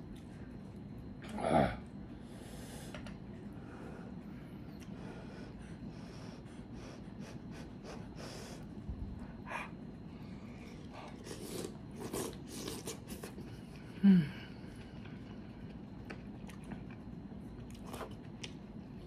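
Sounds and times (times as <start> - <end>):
chewing: 14.7 - 19.0.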